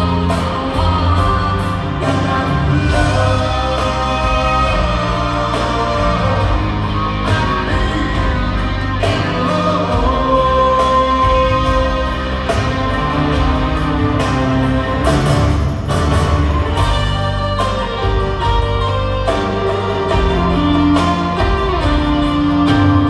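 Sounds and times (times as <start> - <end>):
person singing: 0.0 - 14.4
grand piano: 0.0 - 23.0
live rock band in arena: 0.0 - 23.0.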